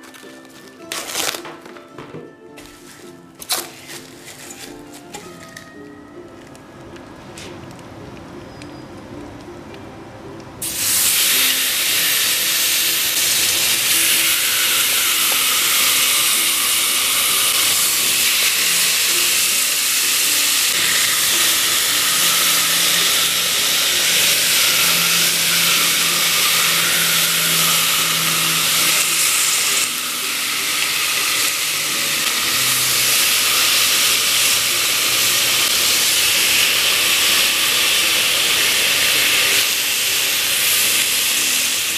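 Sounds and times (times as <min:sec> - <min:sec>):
meat sizzling on grill: 0:10.6 - 0:41.9.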